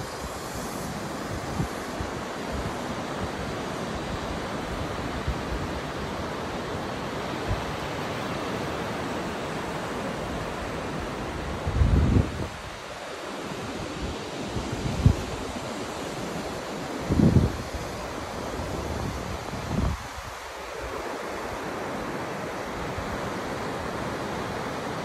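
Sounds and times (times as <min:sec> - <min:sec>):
wind on microphone: 0:00.0 - 0:08.0, 0:10.2 - 0:12.9, 0:13.6 - 0:21.8
waves breaking on beach: 0:00.0 - 0:25.0.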